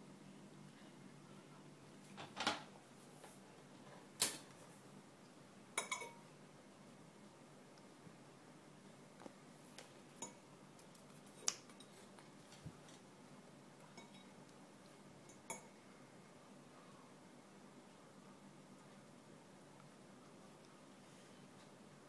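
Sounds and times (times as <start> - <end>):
fork clinking on ceramic plate: 5.8 - 6.2, 13.9 - 14.3.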